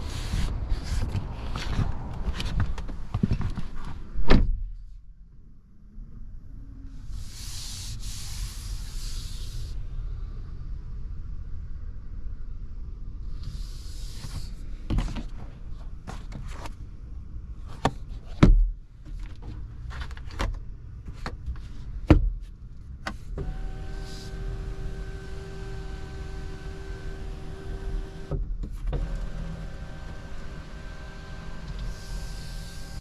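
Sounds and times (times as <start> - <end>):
sun visor clicks and knocks: 0.4 - 4.6, 17.8 - 23.2.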